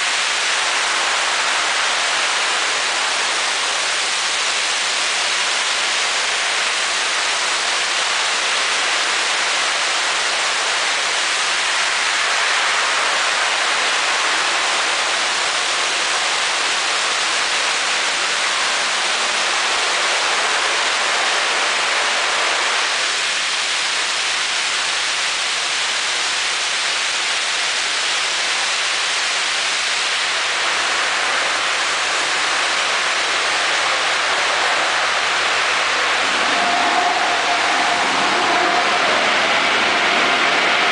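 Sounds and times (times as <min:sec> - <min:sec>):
high-pressure water spray hissing: 0:00.0 - 0:40.9.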